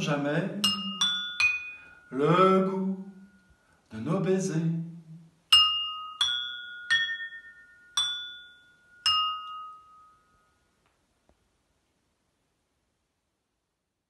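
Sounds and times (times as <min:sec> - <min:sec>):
stemmed glasses ringing when struck: 0:00.6 - 0:03.6, 0:05.5 - 0:10.6.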